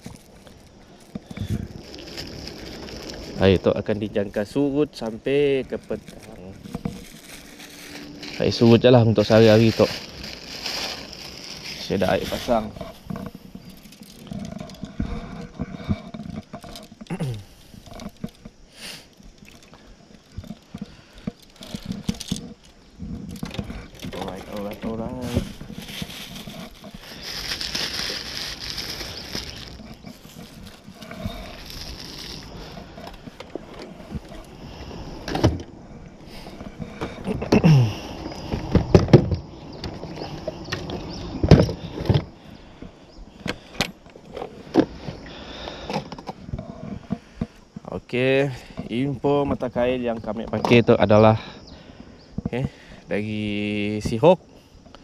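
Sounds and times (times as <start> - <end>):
fishing gear knocking and clattering: 0.0 - 34.6.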